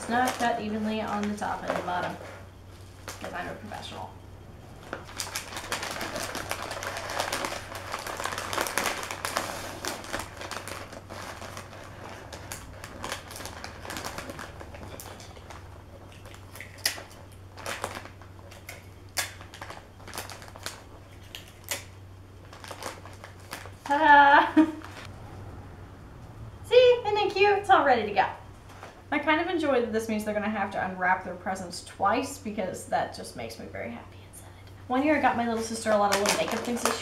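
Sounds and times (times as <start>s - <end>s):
wrapping paper crinkling: 0.0s - 4.0s, 4.7s - 25.1s, 35.5s - 37.0s.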